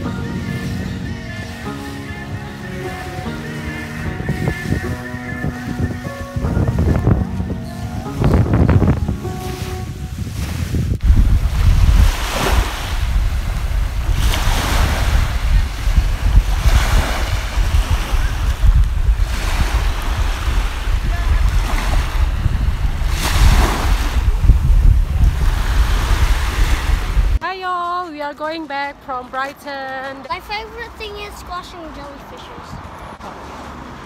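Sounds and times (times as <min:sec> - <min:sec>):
wind rumble on microphone: 0:03.2 - 0:27.4
small waves washing onto beach: 0:09.2 - 0:27.4.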